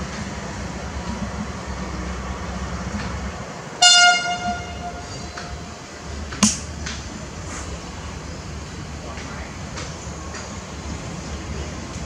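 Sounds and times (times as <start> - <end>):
diesel locomotive engine rumble: 0.0 - 12.0
train horn toot: 3.8 - 5.8.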